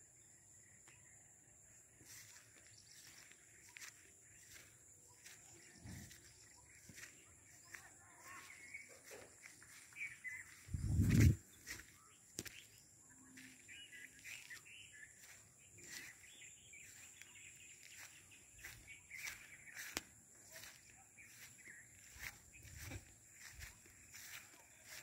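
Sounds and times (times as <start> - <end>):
birds chirping: 0.0 - 25.0
wind rumble on microphone: 10.6 - 11.5.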